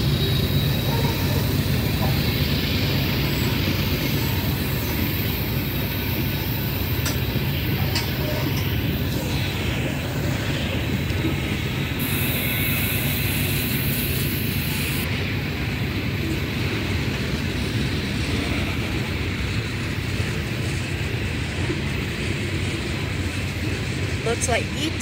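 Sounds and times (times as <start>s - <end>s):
steel wheels rumbling on rail: 0.0s - 25.0s
high hiss: 11.7s - 15.1s.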